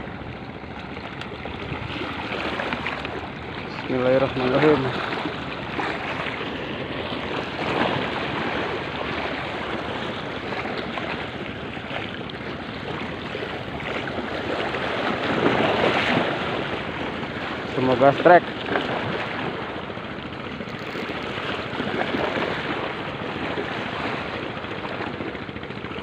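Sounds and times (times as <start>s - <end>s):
waves washing against rocks: 1.2s - 19.8s.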